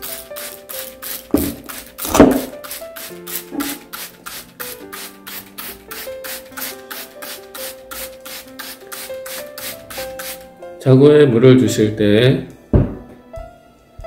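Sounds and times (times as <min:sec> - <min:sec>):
spray bottle hissing squirts: 0:00.0 - 0:10.5.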